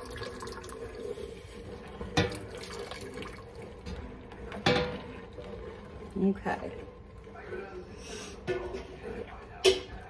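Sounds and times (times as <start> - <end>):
broth pouring into pot: 0.0 - 8.0.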